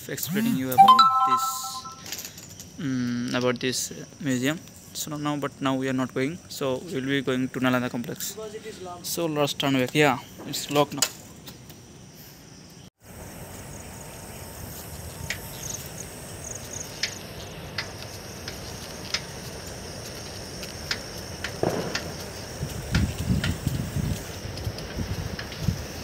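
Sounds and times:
crickets chirping: 0.2s - 26.0s
moving bicycle rumble: 13.1s - 26.0s
sharp ticks: 17.8s - 26.0s
wind on microphone: 21.7s - 26.0s.

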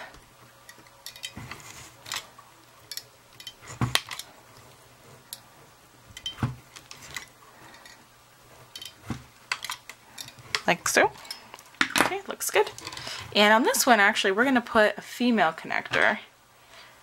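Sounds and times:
small metallic clicks and knocks: 0.6s - 4.3s, 8.7s - 13.0s.

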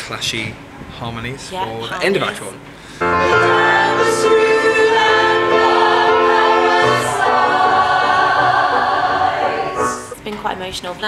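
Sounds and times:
small group singing close harmony: 3.0s - 10.2s.

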